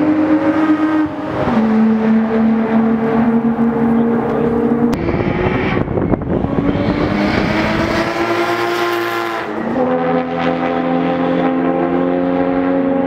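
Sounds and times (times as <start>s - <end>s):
cars passing at full throttle: 0.0s - 13.0s
engine accelerating: 0.0s - 13.0s.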